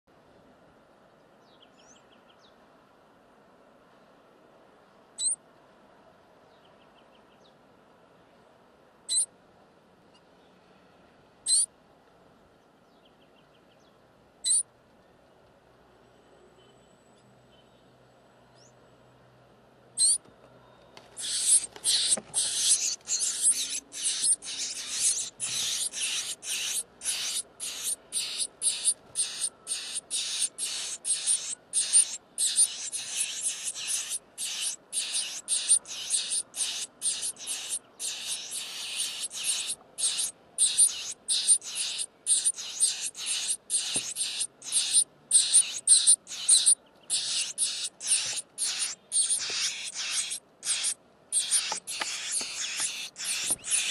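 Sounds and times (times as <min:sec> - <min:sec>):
nestlings begging calls: 0:11.5 - 0:11.7, 0:20.0 - 0:20.2, 0:21.2 - 0:53.9.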